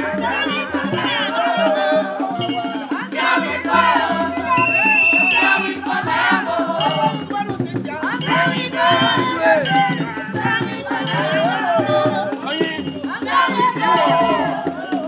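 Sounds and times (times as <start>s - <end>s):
group singing in chorus: 0.0s - 15.0s
hand percussion: 0.0s - 15.0s
shrill held high note: 2.4s - 2.9s, 3.7s - 6.0s, 6.8s - 7.3s, 8.2s - 10.4s.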